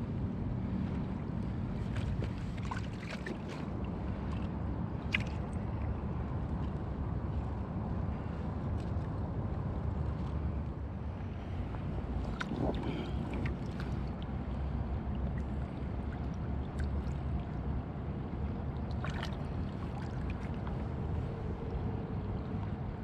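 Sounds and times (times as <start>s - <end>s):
shallow river water moving: 0.0s - 23.0s
wind rumble on microphone: 0.0s - 23.0s
small splashes in water: 1.8s - 5.7s, 12.2s - 14.4s, 18.7s - 21.0s.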